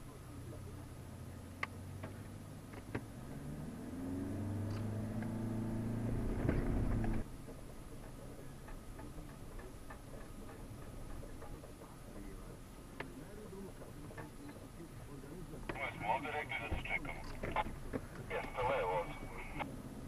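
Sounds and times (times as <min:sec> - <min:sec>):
vehicle engine revving: 0:01.2 - 0:07.3.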